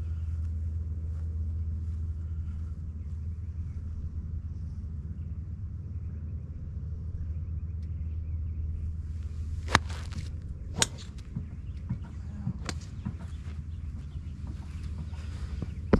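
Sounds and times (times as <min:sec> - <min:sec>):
steady low rumble: 0:00.0 - 0:15.9
golf club striking ball: 0:09.2 - 0:13.3.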